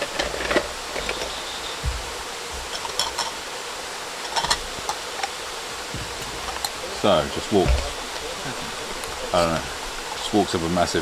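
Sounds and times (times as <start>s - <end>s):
running water rushing: 0.0s - 11.0s.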